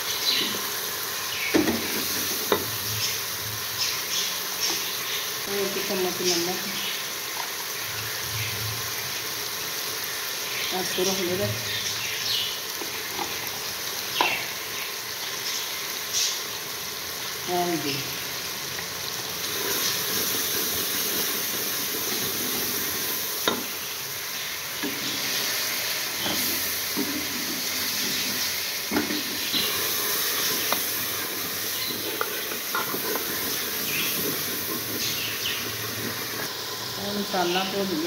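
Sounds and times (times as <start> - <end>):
masala sizzling in a pot: 0.0 - 38.0
wooden spoon scraping a pot: 26.2 - 36.5.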